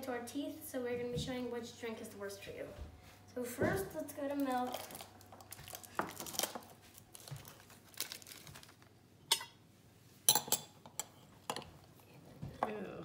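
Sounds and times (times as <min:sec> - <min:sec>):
plastic wrap crinkling: 0:04.0 - 0:09.0.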